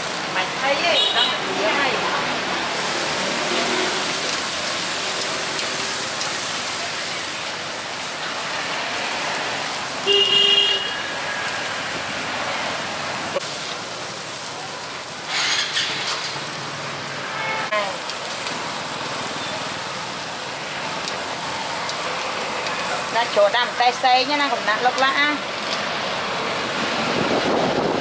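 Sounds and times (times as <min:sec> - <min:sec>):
steady street hiss: 0:00.0 - 0:28.0
vehicle horn toot: 0:10.0 - 0:11.1, 0:17.3 - 0:17.8.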